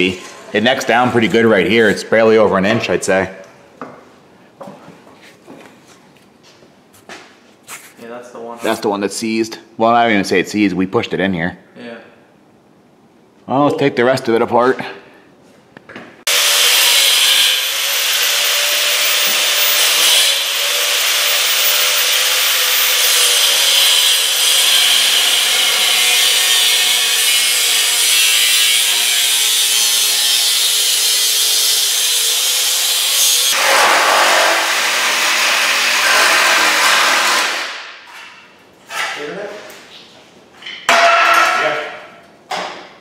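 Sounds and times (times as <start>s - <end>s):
angle grinder cutting metal pipe: 16.3s - 37.7s.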